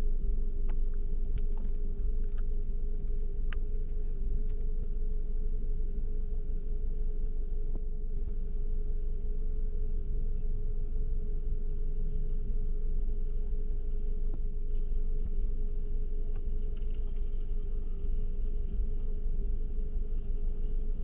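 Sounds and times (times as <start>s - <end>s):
car engine and road rumble: 0.0s - 21.0s
mid-pitched hum: 0.0s - 21.0s.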